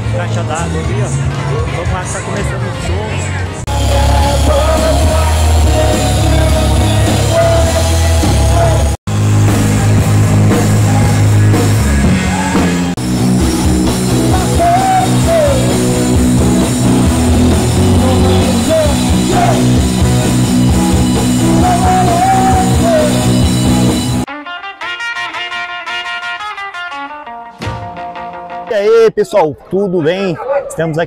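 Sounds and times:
electric guitars: 0:00.0 - 0:28.7
bass guitar: 0:00.0 - 0:29.1
person singing: 0:03.7 - 0:09.0, 0:13.6 - 0:16.6, 0:17.3 - 0:19.8, 0:20.9 - 0:23.4
drum kit: 0:03.7 - 0:26.7, 0:27.4 - 0:28.8.

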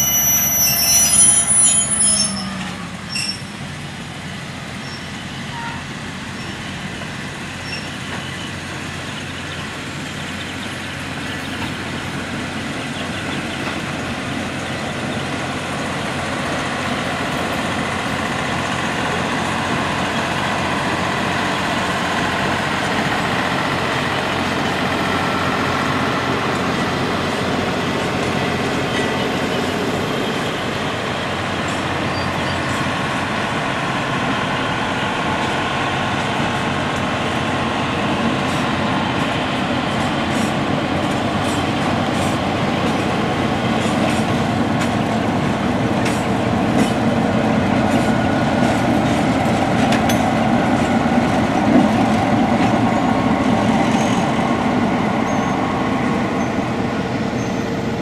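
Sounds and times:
diesel locomotive engine: 0:00.0 - 0:58.0
wheels clicking over rail joints: 0:38.2 - 0:55.4.

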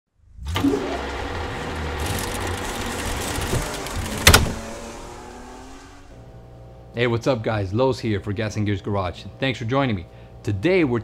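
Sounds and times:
mechanical rush: 0:00.8 - 0:06.2.

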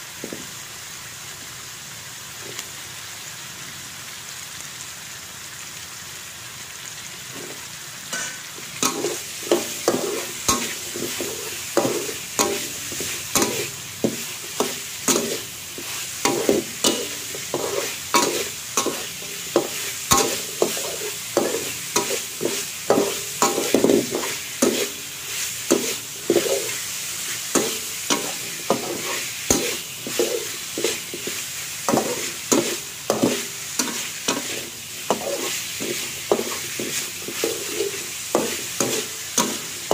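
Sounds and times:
sizzle of frying: 0:00.0 - 0:39.9
metal spatula scraping a wok: 0:08.1 - 0:39.9.

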